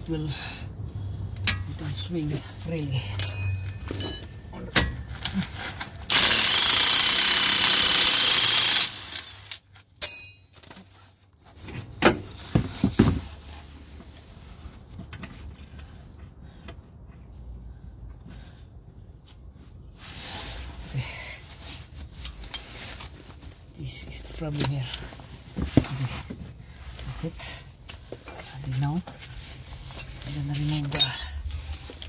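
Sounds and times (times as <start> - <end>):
metallic clink of tools: 3.2 - 4.9, 10.0 - 10.6, 30.0 - 32.0
impact wrench running: 6.1 - 9.6.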